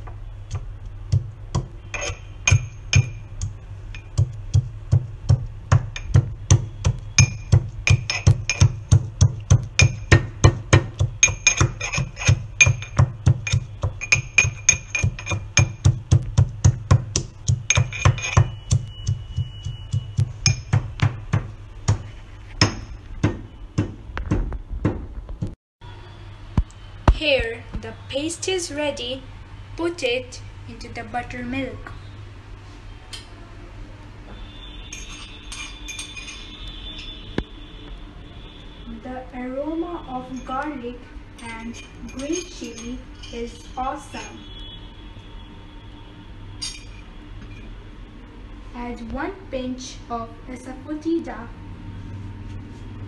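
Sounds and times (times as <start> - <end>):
metal pestle pounding in steel cup: 0.5 - 25.1.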